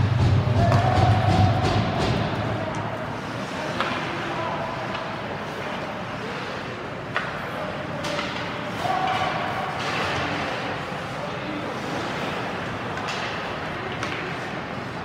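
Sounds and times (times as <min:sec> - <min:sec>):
echoing voices: 0:00.0 - 0:15.0
stick hitting puck: 0:03.6 - 0:05.8, 0:07.1 - 0:10.6, 0:11.9 - 0:14.6.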